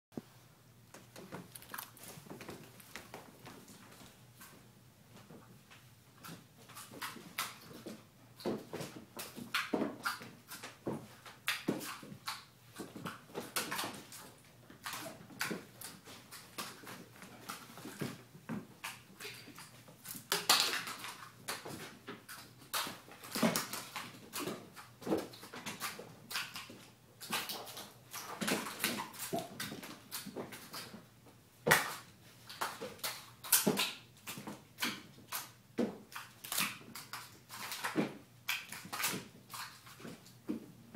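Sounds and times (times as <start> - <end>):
paws scrabbling: 1.0 - 4.6.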